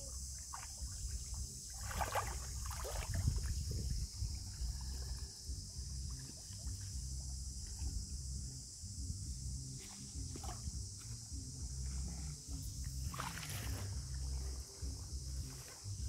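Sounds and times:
water splashing: 0.1 - 5.3, 12.8 - 16.0
low rumble: 2.2 - 16.0.

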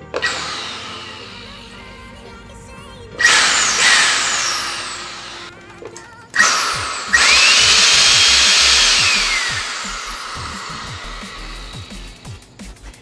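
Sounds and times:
vacuum cleaner motor whining: 0.0 - 1.9, 3.2 - 5.5, 6.4 - 12.3.

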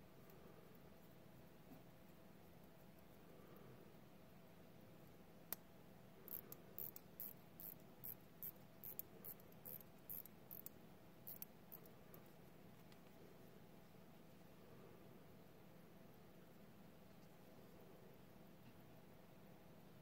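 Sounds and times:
watch winding ratchet clicks: 6.3 - 10.7, 11.3 - 11.5.

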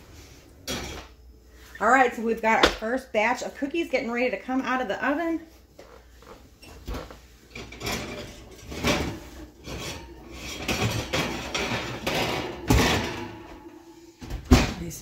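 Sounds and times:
stone scraping on metal rack: 7.5 - 12.4.

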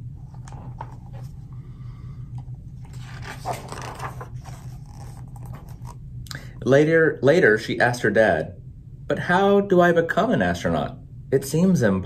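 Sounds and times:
low hum: 0.0 - 10.1
book pages turning: 0.2 - 1.4, 2.8 - 6.0
paper rustling: 0.3 - 1.4, 2.8 - 6.0.

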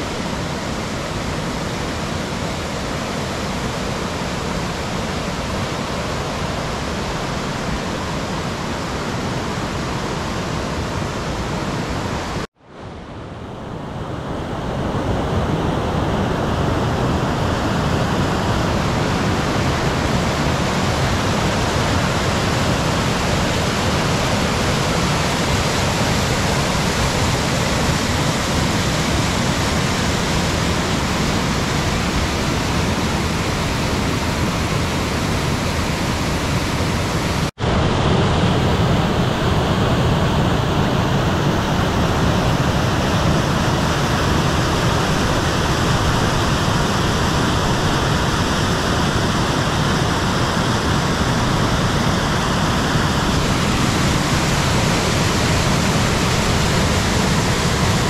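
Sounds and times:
waterfall rushing over rock: 15.2 - 58.0.

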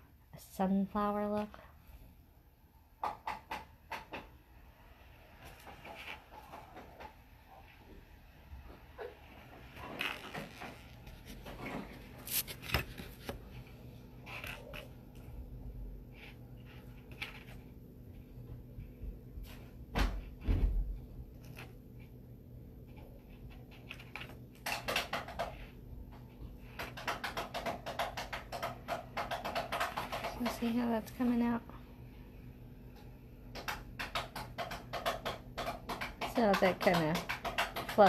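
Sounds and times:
beads clicking on a tabletop: 26.7 - 30.7, 33.5 - 38.0.

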